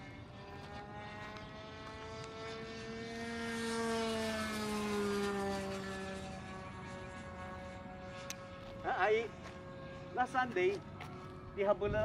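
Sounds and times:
model airplane engine buzzing: 0.0 - 12.0.

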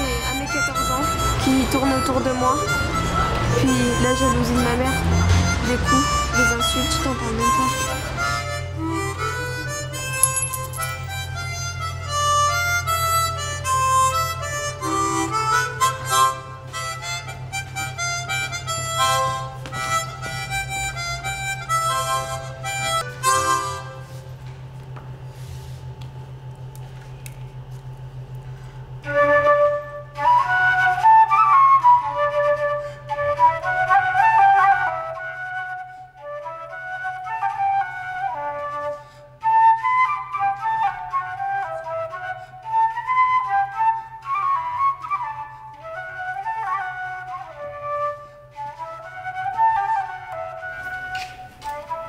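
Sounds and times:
harmonica playing: 0.0 - 24.2
steady low hum: 0.0 - 31.0.

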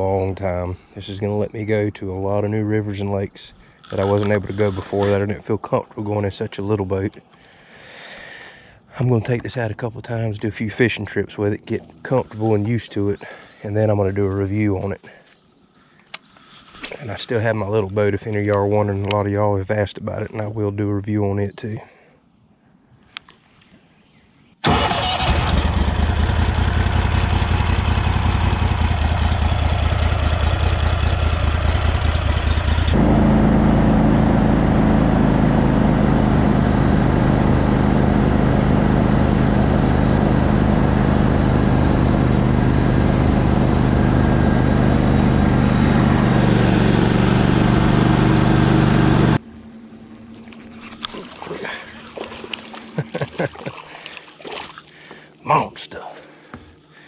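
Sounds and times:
boat motor running: 25.2 - 49.4, 50.0 - 55.4.

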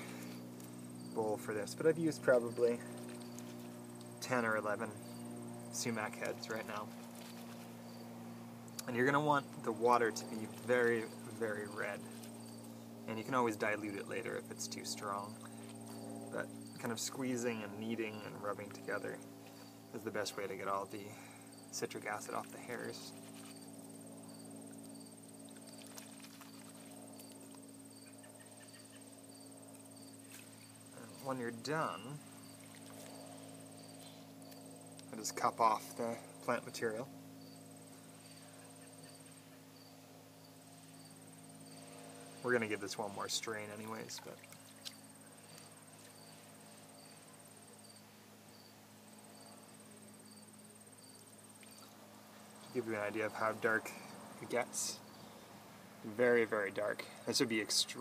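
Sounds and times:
crickets trilling: 0.0 - 58.0
insect chirps: 0.0 - 58.0
low hum: 0.0 - 58.0
small water splashes: 25.4 - 27.5, 32.3 - 33.6, 44.0 - 46.2.

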